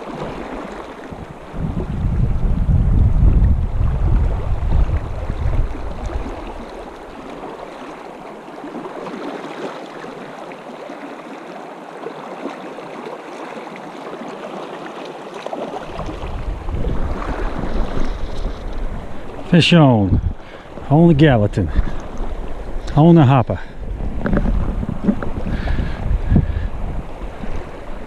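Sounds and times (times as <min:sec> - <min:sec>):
wind rumbling on microphone: 0:00.0 - 0:07.6, 0:15.7 - 0:28.0.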